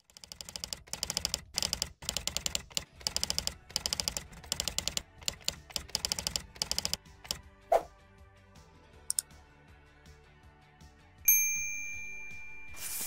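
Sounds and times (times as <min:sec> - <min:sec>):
rapid keyboard clicks: 0:00.0 - 0:07.4.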